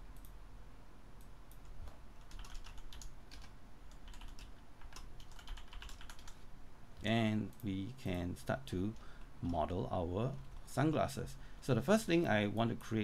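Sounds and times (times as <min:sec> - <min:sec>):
typing on computer keyboard: 0:01.5 - 0:06.4.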